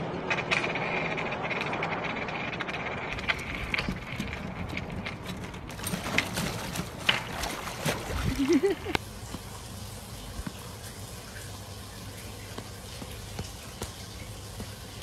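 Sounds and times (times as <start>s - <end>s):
skateboard clicks: 0.0s - 6.3s
skateboard wheels rolling on stone: 0.0s - 15.0s.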